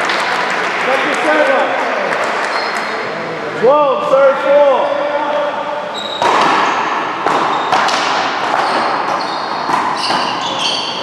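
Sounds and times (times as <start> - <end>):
short high squeaks: 5.9 - 6.8, 8.6 - 11.0
ball striking wall and floor: 6.1 - 11.0
paddle hitting ball: 6.2 - 10.4.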